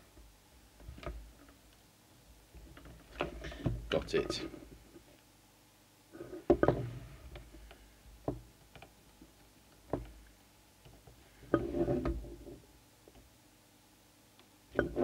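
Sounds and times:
knocks and clicks of handling: 0:09.8 - 0:10.2.

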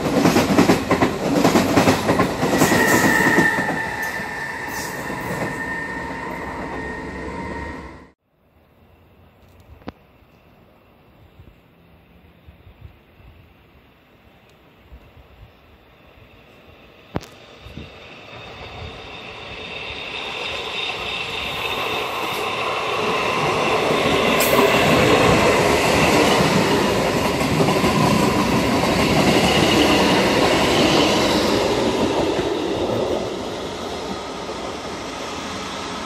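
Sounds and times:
passenger train running past: 0:00.0 - 0:08.2, 0:09.8 - 0:36.0.

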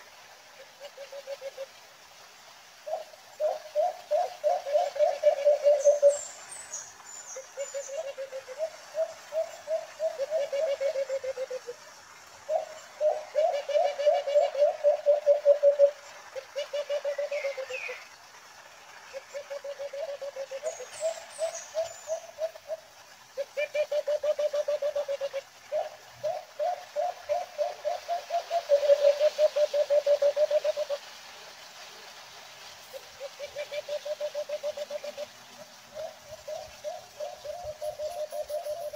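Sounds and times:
dove hooting: 0:02.8 - 0:06.2, 0:07.6 - 0:11.8, 0:12.5 - 0:17.9, 0:23.4 - 0:31.0, 0:33.2 - 0:35.3, 0:35.9 - 0:38.9.

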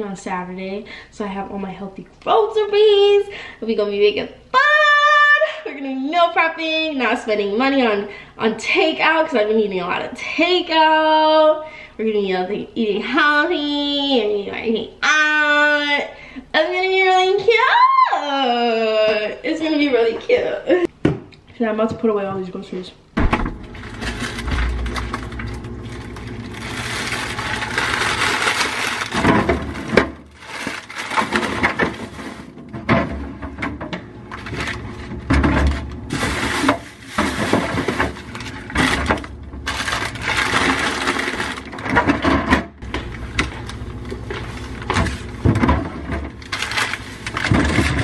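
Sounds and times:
groceries knocking and clattering: 0:23.2 - 0:48.0
bags rustling: 0:23.6 - 0:32.6, 0:34.2 - 0:42.0, 0:43.6 - 0:45.5, 0:46.3 - 0:48.0.

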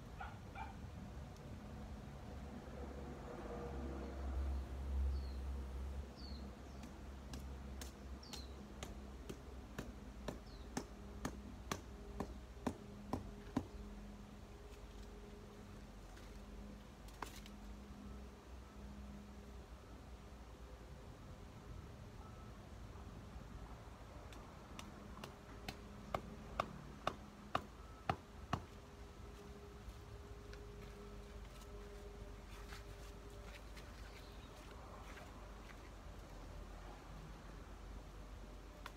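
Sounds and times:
low steady hum: 0:00.0 - 0:38.9.

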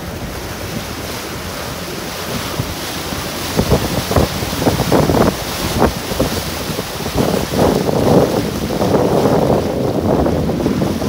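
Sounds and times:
water rushing in boat wake: 0:00.0 - 0:11.0
wind buffeting microphone: 0:00.0 - 0:11.0.

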